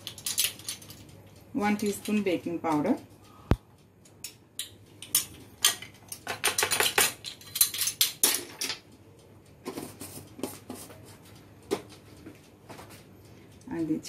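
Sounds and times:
kitchen utensils clattering: 5.0s - 8.8s.

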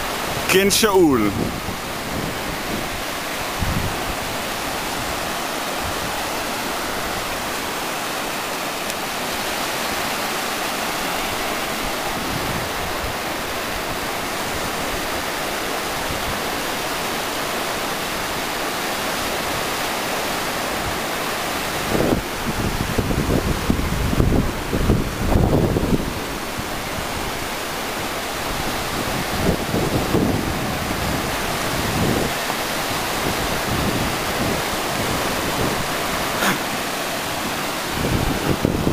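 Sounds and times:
surf breaking on beach: 28.4s - 38.9s
wind buffeting microphone: 37.4s - 38.9s.

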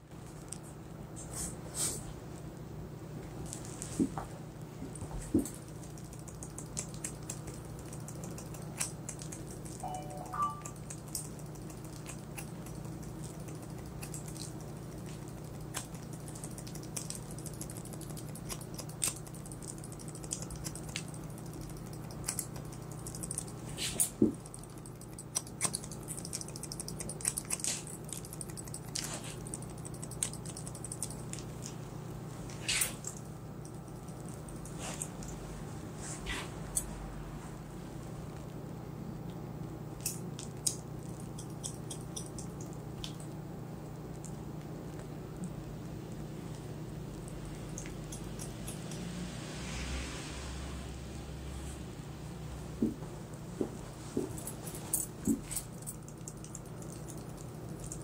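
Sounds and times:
steady low hum: 0.0s - 58.0s
scissors snipping hair: 40.0s - 43.2s, 47.8s - 49.1s.

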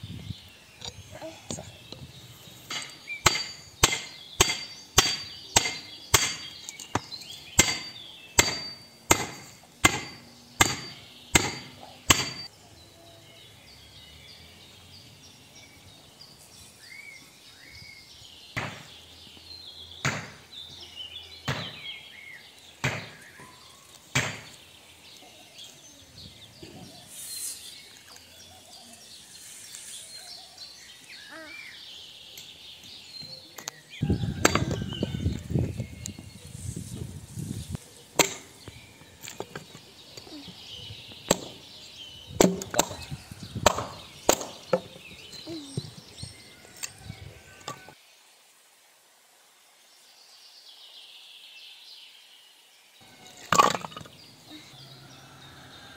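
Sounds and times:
birds chirping: 0.0s - 48.3s, 49.6s - 55.9s
sharp blows on wood: 2.7s - 12.5s.

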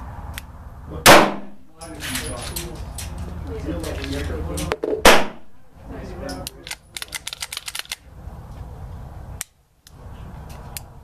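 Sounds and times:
sharp clicks and cracks: 6.3s - 8.0s.

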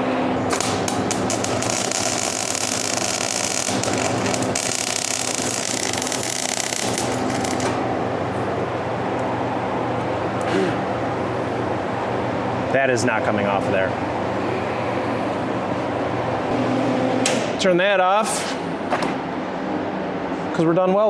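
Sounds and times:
steady low hum: 0.0s - 21.0s
welder arc crackling and sizzling: 0.5s - 7.8s.

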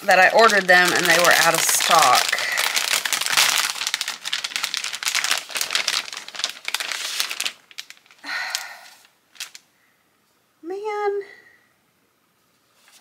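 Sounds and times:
paper and packaging crinkling: 0.0s - 9.7s.

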